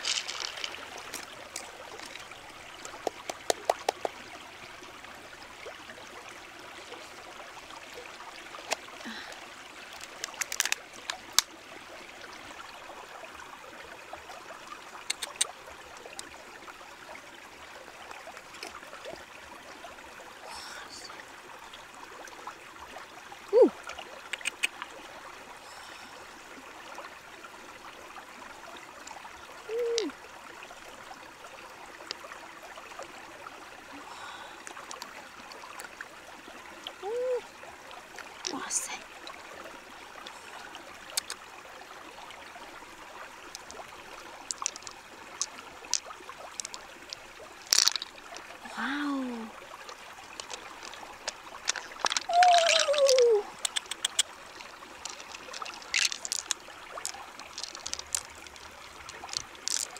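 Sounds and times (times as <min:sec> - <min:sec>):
shallow stream water running: 0:00.0 - 0:59.9
knife clicking on shell: 0:53.6 - 0:54.3.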